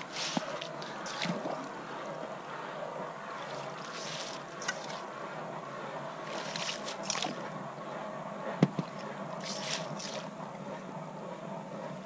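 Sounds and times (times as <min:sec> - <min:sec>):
water and slush sloshing: 0:00.0 - 0:01.9, 0:03.4 - 0:05.1, 0:06.2 - 0:07.5, 0:08.8 - 0:10.3.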